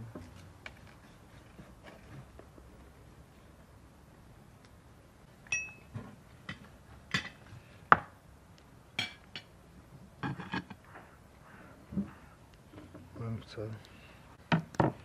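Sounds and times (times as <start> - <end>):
glass and cutlery clinks: 5.5 - 5.9.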